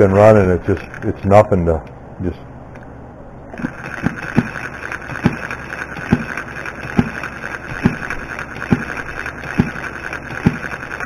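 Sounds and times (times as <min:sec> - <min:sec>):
small gas engine clattering: 0:03.6 - 0:11.0.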